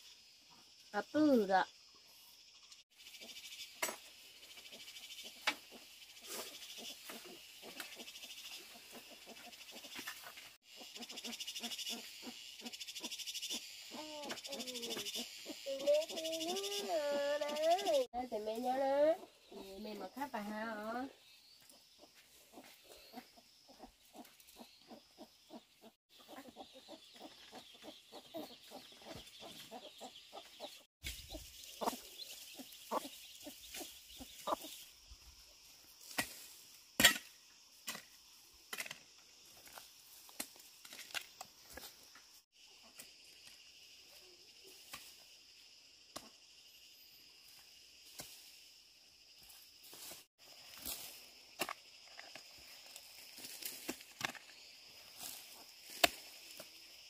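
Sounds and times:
chickens clucking: 0:04.6 - 0:13.1, 0:22.4 - 0:34.8.

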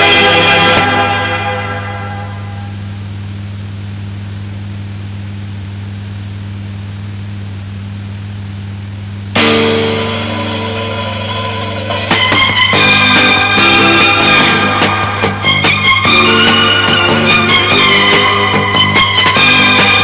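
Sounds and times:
music with guitar: 0:00.0 - 0:02.8, 0:09.4 - 0:20.0
low hum with hiss: 0:00.0 - 0:20.0.

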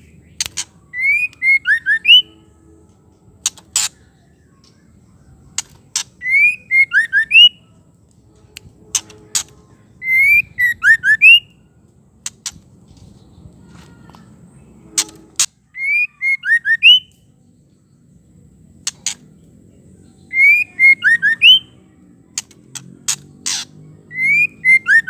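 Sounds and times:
sharp clicks: 0:00.4 - 0:01.5, 0:22.3 - 0:23.6
bird singing whistled phrases: 0:00.9 - 0:02.4, 0:06.2 - 0:07.6, 0:09.4 - 0:11.6, 0:15.7 - 0:17.2, 0:20.1 - 0:21.8, 0:24.1 - 0:25.0.

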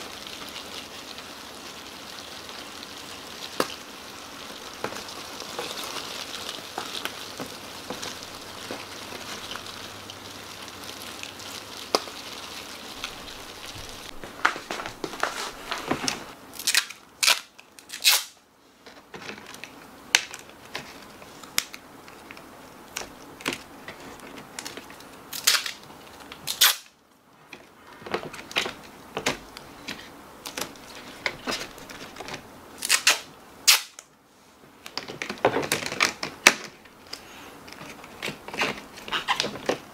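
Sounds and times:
rustling over cardboard trays: 0:00.0 - 0:16.4, 0:18.7 - 0:26.5, 0:27.3 - 0:32.8, 0:34.2 - 0:39.9
plastic mesh clicking and crinkling: 0:11.2 - 0:34.1, 0:34.8 - 0:39.9
packing tape ripping: 0:14.4 - 0:18.4, 0:25.3 - 0:27.0, 0:32.8 - 0:34.1.

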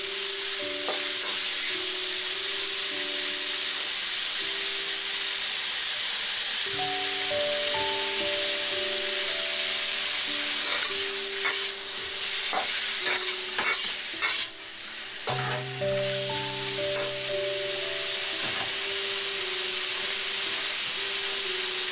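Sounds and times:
food sizzling in hot oil: 0:00.0 - 0:21.9
metal spatula scraping wok: 0:10.5 - 0:14.6, 0:15.3 - 0:17.3.

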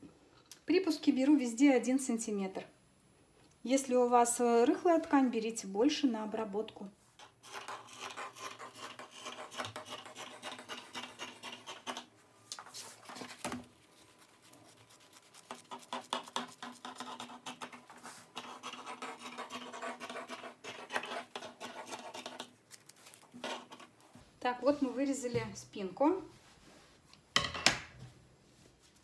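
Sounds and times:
scissors cutting paper: 0:07.5 - 0:12.1, 0:13.9 - 0:17.8
paper rustling: 0:12.5 - 0:14.4, 0:22.7 - 0:23.9.

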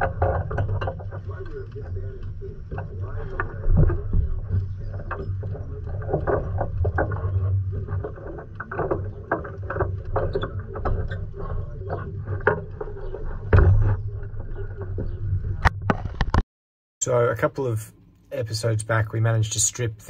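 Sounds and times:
steady low rumble: 0:00.0 - 0:15.8.

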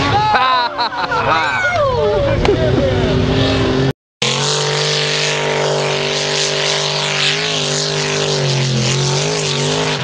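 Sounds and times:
truck engine at high revs: 0:02.2 - 0:10.0.

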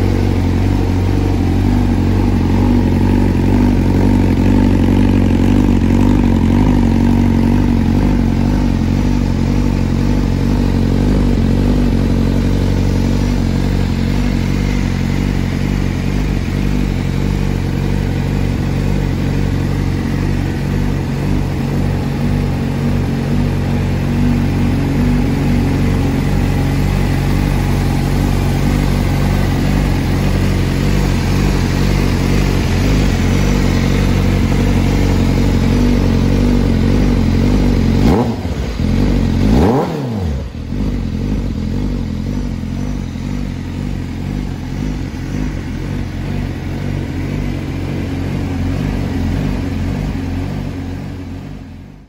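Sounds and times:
motorcycle engine idling and revving: 0:00.0 - 0:52.0.

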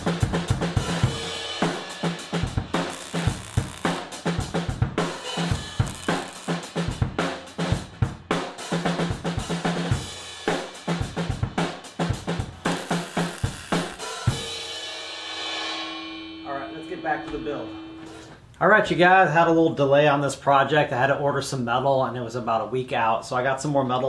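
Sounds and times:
drum kit playing: 0:00.0 - 0:18.5.

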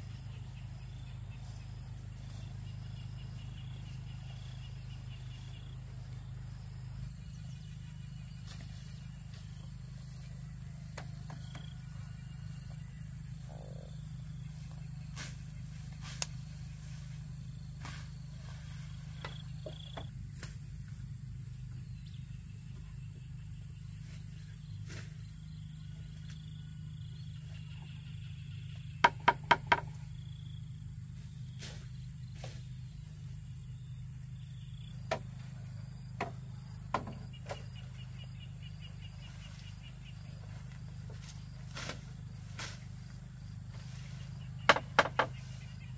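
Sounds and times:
faint high insect chirr: 0:00.0 - 0:45.9
sharp knocks: 0:29.0 - 0:30.0, 0:36.2 - 0:37.6, 0:44.7 - 0:45.4.

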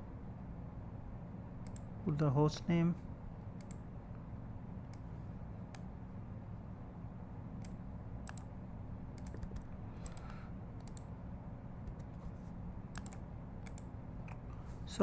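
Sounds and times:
faint low hum: 0:00.0 - 0:15.0
mouse and keyboard clicks: 0:09.2 - 0:11.1, 0:12.9 - 0:14.4.

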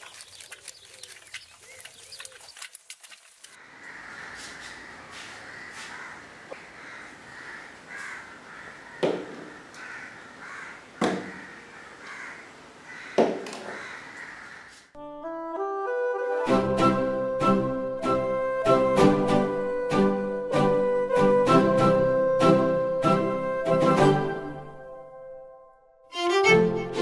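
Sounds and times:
outdoor background ambience: 0:00.0 - 0:15.1
crows cawing: 0:03.6 - 0:14.9.

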